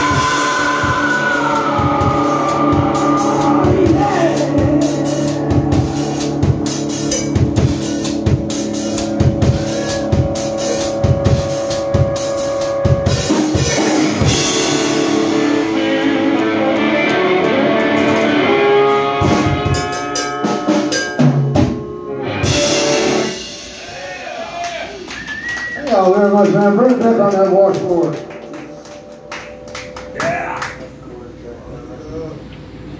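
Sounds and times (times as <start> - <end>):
ringing electric guitar chords: 0.0 - 25.1, 26.9 - 31.5
drum strokes: 0.0 - 25.4
live rock band playing: 0.0 - 31.0.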